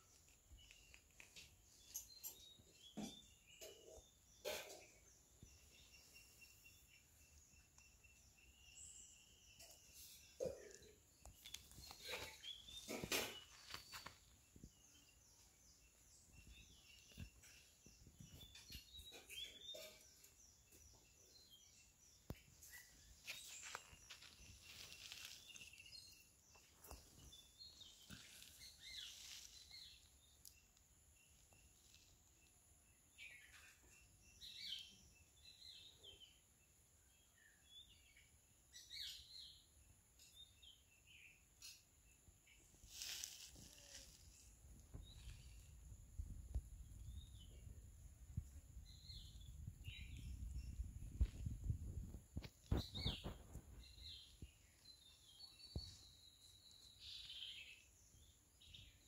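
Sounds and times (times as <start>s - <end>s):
faint bird chirps: 0.0s - 36.4s, 37.0s - 59.0s
soft scuffs: 11.8s - 14.8s, 22.7s - 29.9s, 42.8s - 45.6s.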